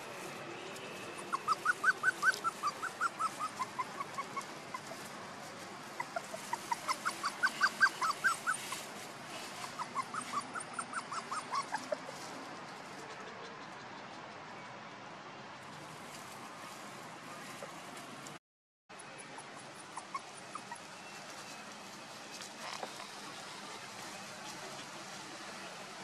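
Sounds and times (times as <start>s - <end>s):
puppy yelping: 1.3s - 5.0s, 6.0s - 8.8s, 9.6s - 12.1s, 19.2s - 21.1s.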